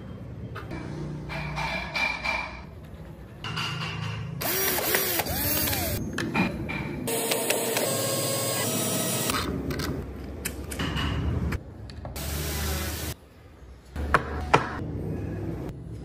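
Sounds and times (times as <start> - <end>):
cordless drill whining: 4.4 - 6.0.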